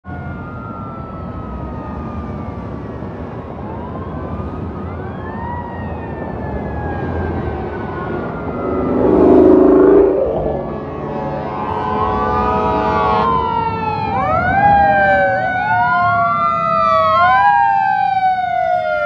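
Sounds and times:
low rumble of traffic: 0.0s - 19.0s
fire engine siren wailing: 0.1s - 19.0s
loud horn blast: 8.4s - 13.4s.

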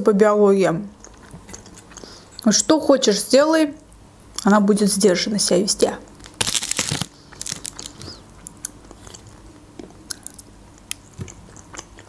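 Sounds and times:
person chewing food: 1.0s - 2.4s, 6.2s - 12.0s.

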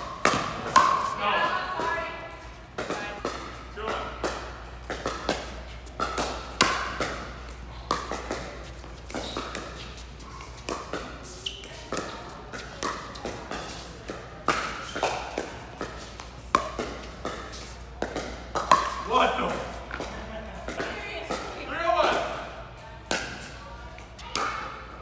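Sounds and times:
paddles striking plastic ball: 0.2s - 1.1s, 2.7s - 9.8s, 11.8s - 22.2s.

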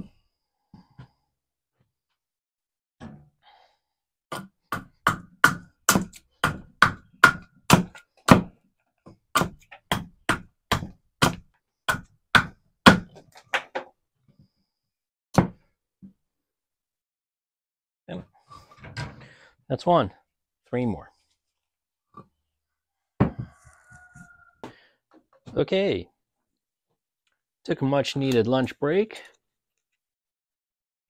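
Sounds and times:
hand tool striking wood: 4.3s - 8.6s, 9.3s - 13.8s.

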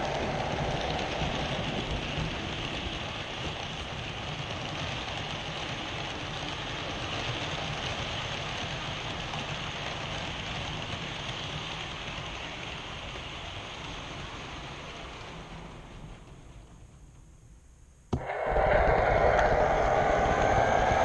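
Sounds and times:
model train wheels clattering: 0.0s - 17.3s.

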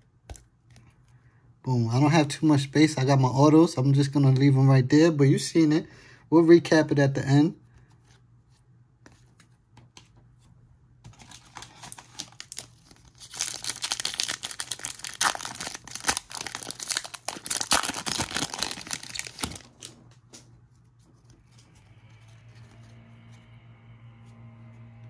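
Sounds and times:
foil wrapper tearing and crinkling: 11.2s - 19.9s.

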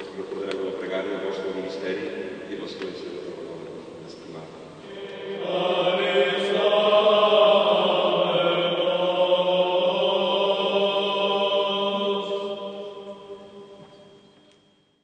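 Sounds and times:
men's choir chanting: 4.8s - 13.8s.

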